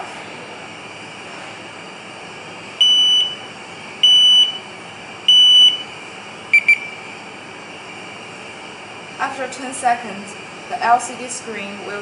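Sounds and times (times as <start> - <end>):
high-pitched buzzer beeps: 2.8 - 3.4, 4.0 - 4.6, 5.3 - 5.8, 6.5 - 6.9
quick lower beeps: 5.3 - 5.8, 6.5 - 7.0.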